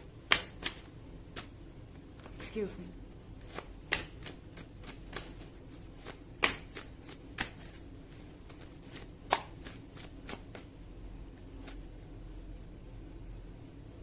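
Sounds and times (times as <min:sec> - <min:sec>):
cards shuffling: 0:00.2 - 0:02.7, 0:03.4 - 0:10.7, 0:11.4 - 0:11.9.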